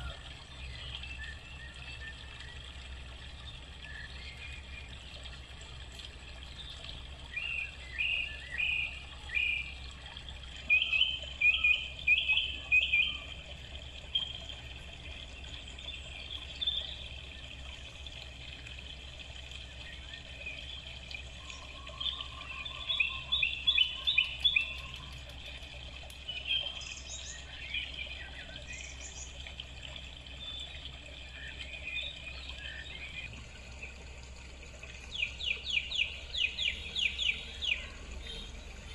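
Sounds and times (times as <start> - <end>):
birds chirping: 19.6 - 29.6, 30.2 - 38.9.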